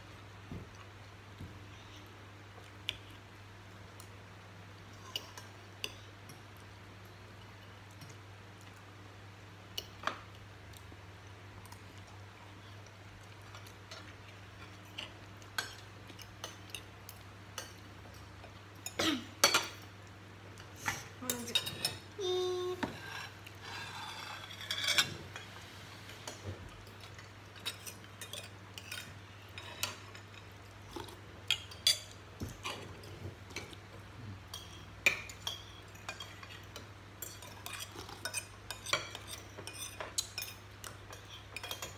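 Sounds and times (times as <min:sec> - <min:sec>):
cutlery clinking on plates: 0:24.1 - 0:25.5, 0:34.6 - 0:41.9.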